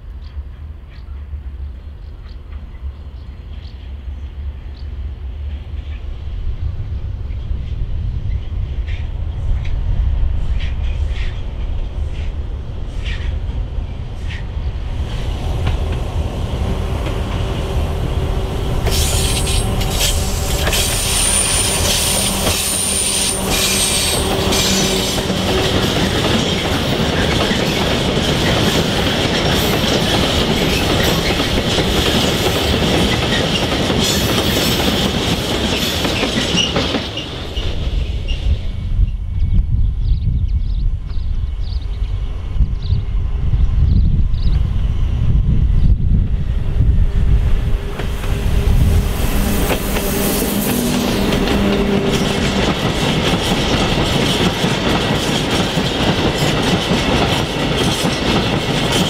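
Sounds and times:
diesel locomotive engine: 0:00.0 - 0:59.0
high wheel squeal: 0:18.8 - 0:26.6.

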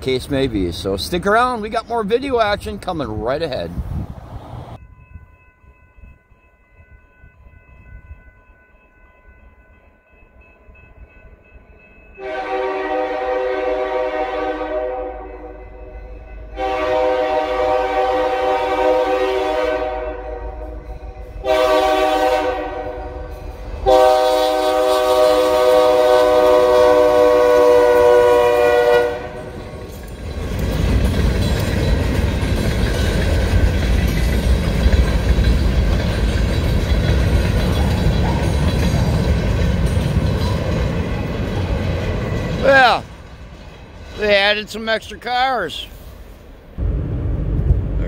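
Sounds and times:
locomotive air horn: 0:12.2 - 0:15.6, 0:16.5 - 0:29.6
freight car wheels rolling: 0:29.4 - 0:44.3.

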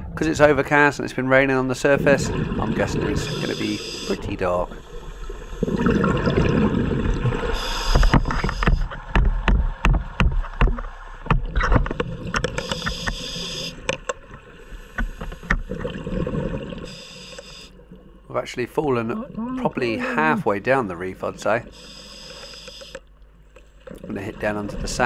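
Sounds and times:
exhaled bubbles gurgling underwater: 0:01.4 - 0:18.3
regulator valve hissing: 0:03.2 - 0:05.7, 0:07.6 - 0:08.9, 0:12.6 - 0:13.8, 0:16.9 - 0:17.8, 0:21.7 - 0:23.0
bubbles popping: 0:05.6 - 0:07.4.

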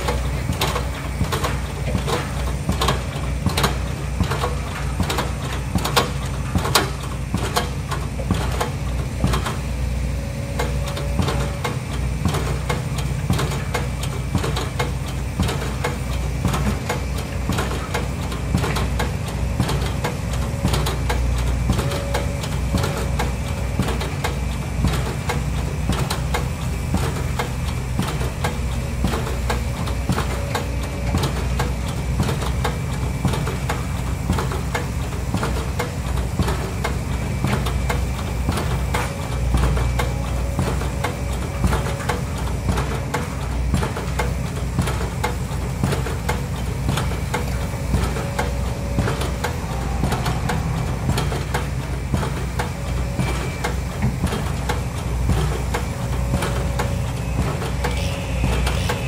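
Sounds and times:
construction machinery engine running: 0:00.0 - 0:59.0
rapid knocking clatter: 0:00.0 - 0:59.0.

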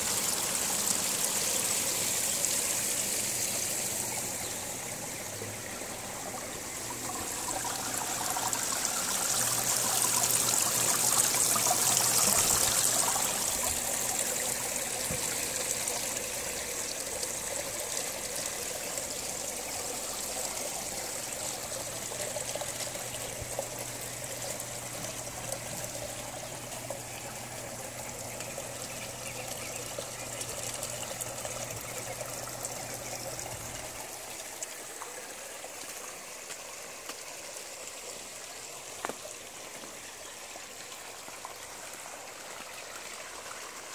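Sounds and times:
water trickling and splashing: 0:00.0 - 0:43.9.

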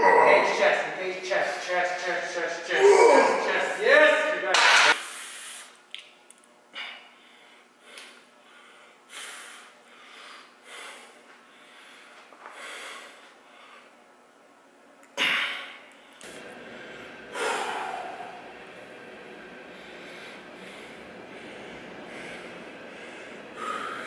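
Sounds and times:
man groaning: 0:00.0 - 0:00.7, 0:02.7 - 0:03.6
man breathing hard: 0:06.7 - 0:14.0, 0:15.2 - 0:24.0.

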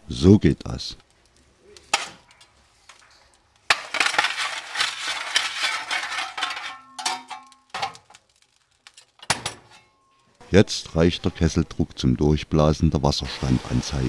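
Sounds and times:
metal shovel scraping and clattering: 0:01.9 - 0:02.3, 0:03.7 - 0:08.2, 0:09.0 - 0:10.2
metal ringing: 0:05.7 - 0:08.1.

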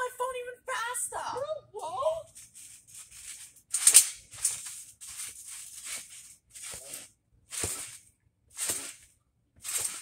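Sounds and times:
trampoline bouncing swishes: 0:02.6 - 0:10.0.

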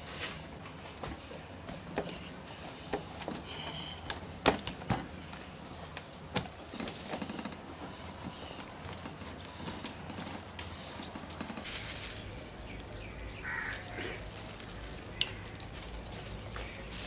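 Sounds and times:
bird calling: 0:12.2 - 0:17.0.

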